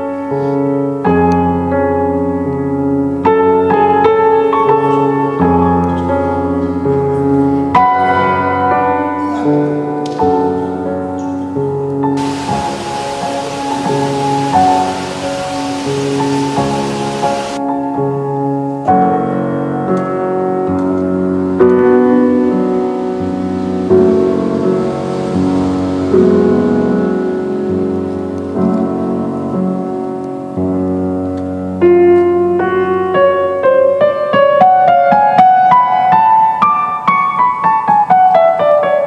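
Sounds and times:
higher single notes: 12.2 - 17.6
slow sustained instrumental chords: 12.2 - 18.2.

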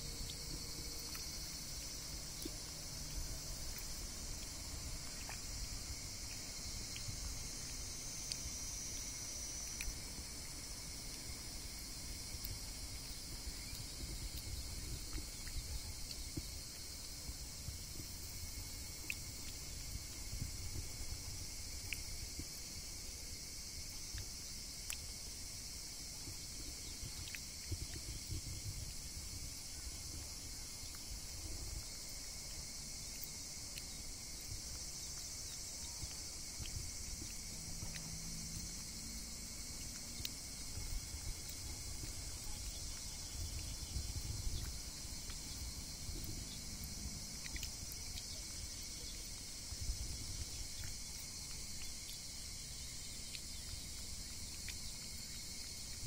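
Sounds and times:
low uneven rumble: 0.0 - 23.2
insects chirring: 0.0 - 56.0
thin steady tone: 0.0 - 56.0.

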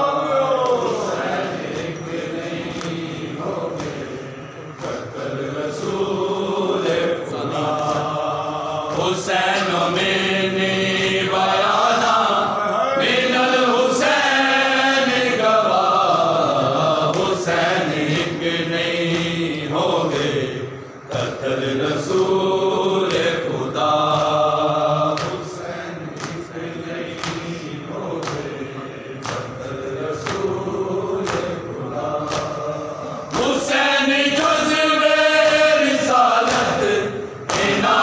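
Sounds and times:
men chanting: 0.0 - 38.0
hands slapping chests: 3.7 - 4.2, 26.1 - 26.5, 27.1 - 27.6, 28.2 - 28.5, 29.2 - 29.5, 31.2 - 31.6, 32.2 - 32.6, 37.5 - 37.8.

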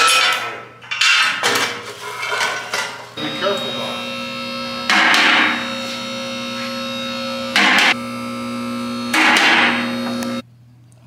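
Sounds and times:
hydraulic pump motor humming: 3.2 - 10.4.

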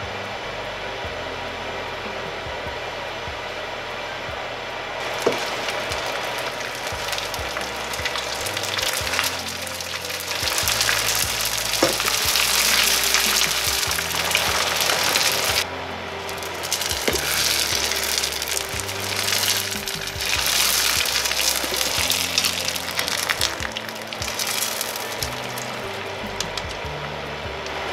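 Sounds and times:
fish skins deep-frying in oil: 5.0 - 15.6, 16.3 - 26.8.

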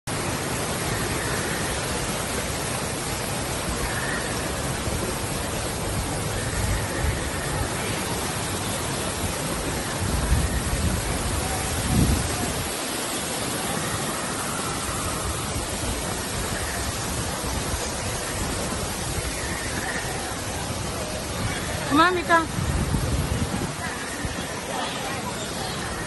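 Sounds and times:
steady rushing hiss: 0.1 - 26.0
wind buffeting microphone: 0.1 - 26.0.

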